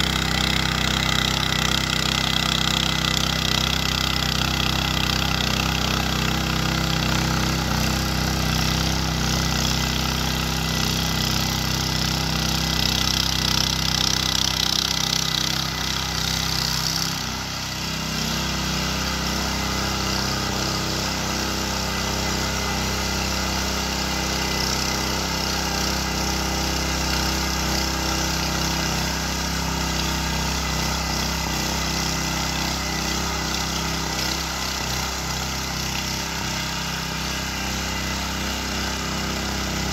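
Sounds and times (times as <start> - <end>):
motor hoe running: 0.0 - 39.9.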